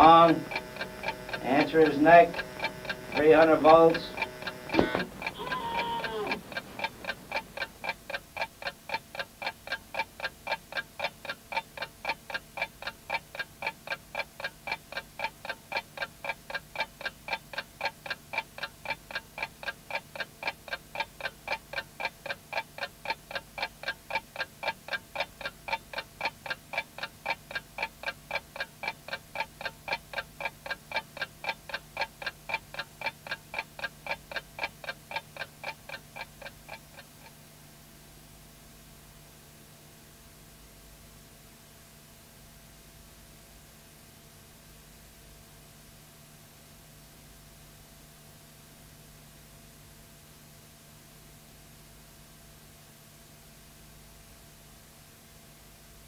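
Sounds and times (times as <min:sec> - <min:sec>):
mechanical ticking: 0:00.0 - 0:37.6.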